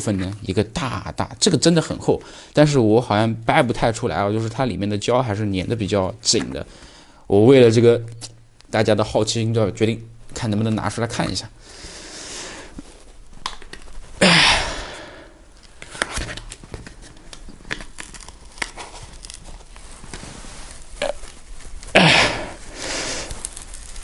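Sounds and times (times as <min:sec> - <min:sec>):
foam and glue creaking: 0:15.6 - 0:24.0.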